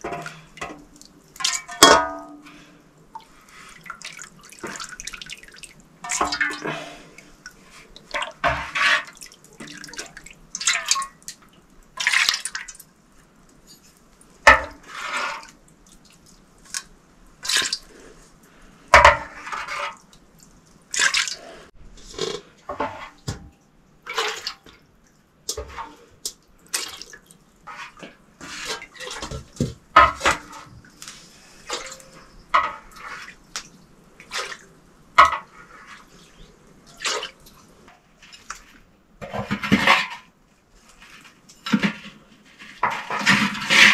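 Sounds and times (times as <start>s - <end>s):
water splashing and sloshing: 0.0s - 43.9s.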